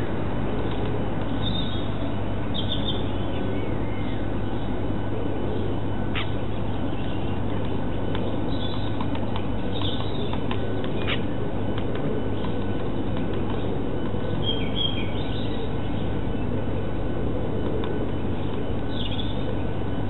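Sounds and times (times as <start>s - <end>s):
small birds calling: 0.0s - 17.0s, 17.6s - 20.0s.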